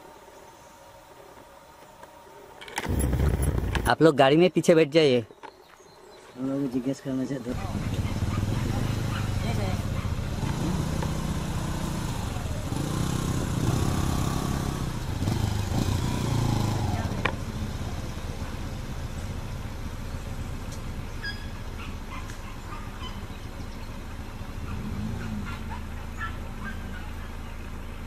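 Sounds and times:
vehicle engine idling: 2.8s - 4.0s, 6.4s - 28.0s
people talking: 6.4s - 8.0s, 8.6s - 9.9s
bird chirps: 21.0s - 24.8s.

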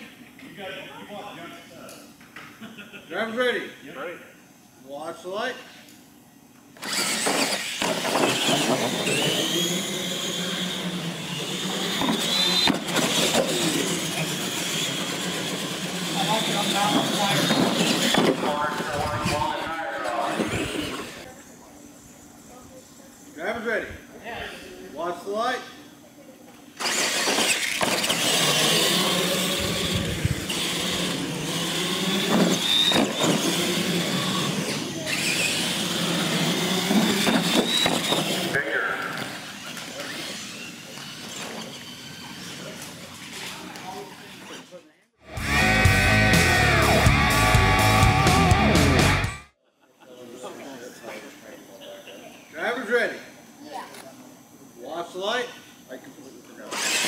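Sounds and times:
electric motors whining: 6.7s - 23.3s, 26.6s - 49.5s, 56.1s - 57.0s.

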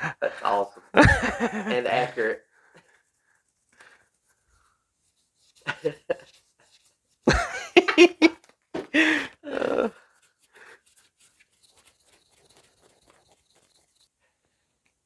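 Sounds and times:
people laughing: 0.0s - 2.4s, 5.7s - 6.2s, 7.3s - 8.4s
faint ticks and scrapes: 1.8s - 7.3s, 10.0s - 15.0s.

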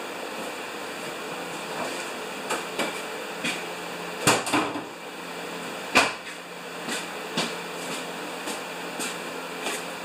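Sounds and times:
furnace humming: 0.0s - 10.0s.

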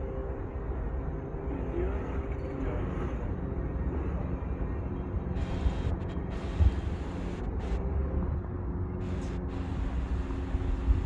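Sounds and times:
low rumble of traffic: 0.0s - 11.0s.

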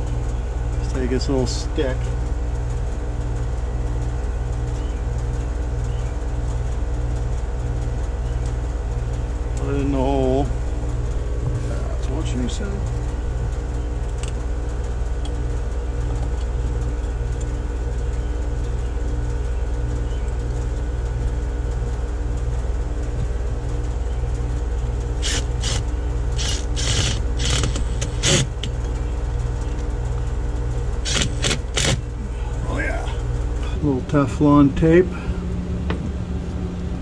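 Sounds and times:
low mechanical hum: 0.0s - 37.0s
cordless drill driving screws: 25.2s - 25.8s, 26.4s - 28.5s, 31.0s - 32.0s.

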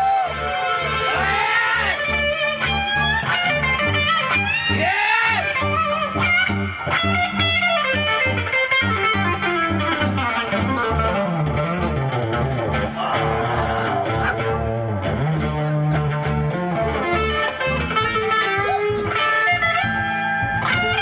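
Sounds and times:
drums: 0.0s - 16.2s
bass line: 0.1s - 21.0s
electric guitar lead: 0.2s - 21.0s.

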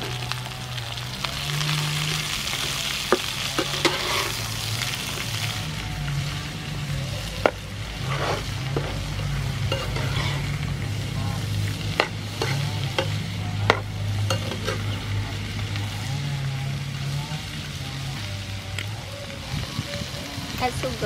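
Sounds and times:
shrimp sizzling in a pan: 0.0s - 21.0s
metal spatula scraping a pan: 1.6s - 5.5s, 7.4s - 15.2s
spatula clacking against pan: 12.0s - 14.9s.

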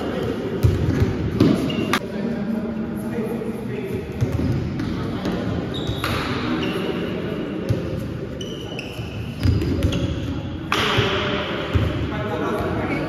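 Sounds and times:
trainers squeaking on floor: 5.7s - 7.0s, 8.4s - 10.3s.

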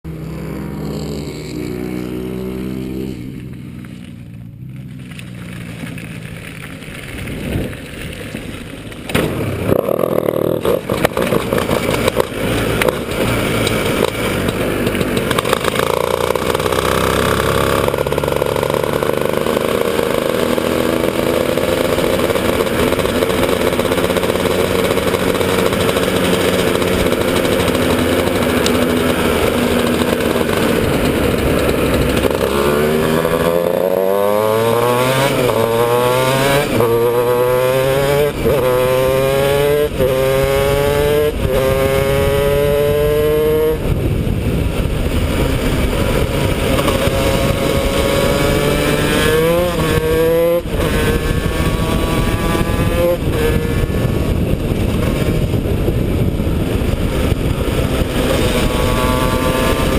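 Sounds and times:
two-stroke kart engine revving: 0.1s - 4.0s, 7.4s - 59.9s.

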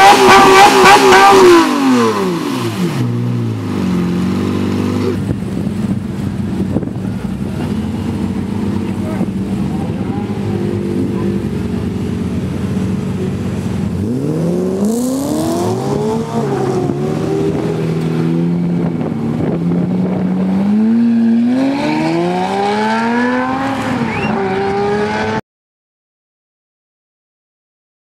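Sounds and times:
car engine idling and revving: 0.0s - 25.4s.

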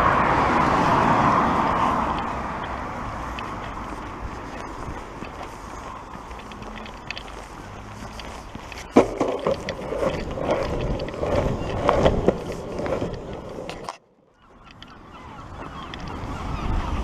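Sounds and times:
longboard wheels rolling on pavement: 0.0s - 17.0s.

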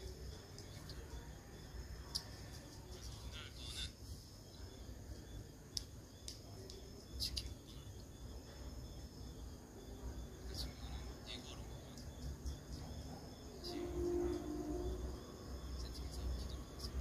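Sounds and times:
high-pitched whine: 6.9s - 17.0s.

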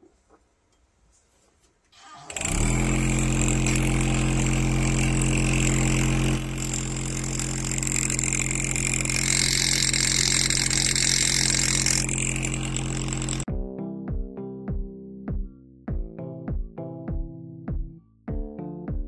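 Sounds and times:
engraver handpiece buzzing: 2.3s - 13.5s
graver scratching metal: 2.4s - 13.5s.

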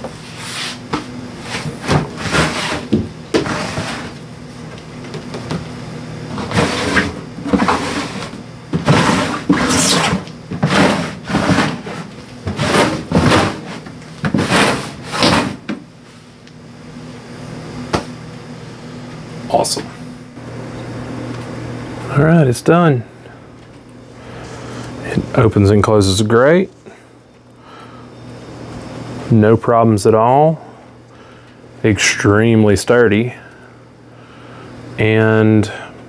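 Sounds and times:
plastic tubs scraping on wood: 1.5s - 4.2s, 6.3s - 15.8s.

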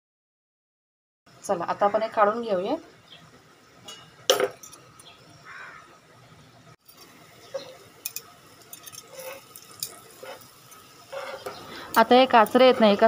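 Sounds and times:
tongs clicking on pan: 6.9s - 13.0s.

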